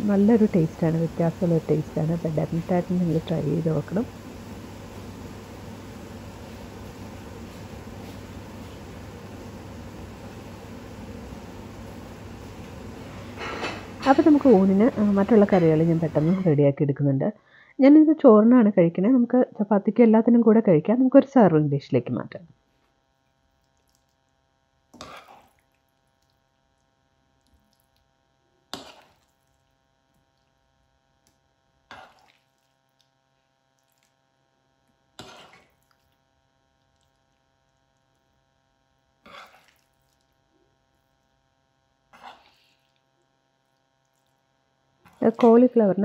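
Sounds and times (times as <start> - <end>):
faint steady hum: 0.0 - 46.0
spoon scraping in a pan: 28.8 - 29.4, 35.2 - 36.0, 42.2 - 43.0.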